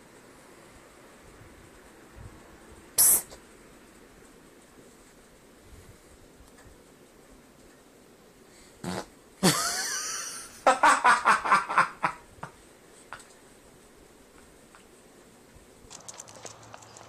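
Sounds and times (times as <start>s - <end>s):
loud fart: 8.8s - 9.2s.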